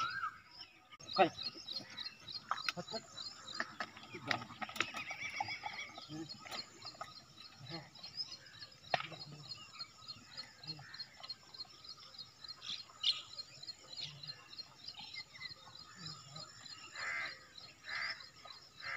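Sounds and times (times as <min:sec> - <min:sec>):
coarse bird call: 0:00.0 - 0:11.6
birds chirping: 0:00.0 - 0:18.9.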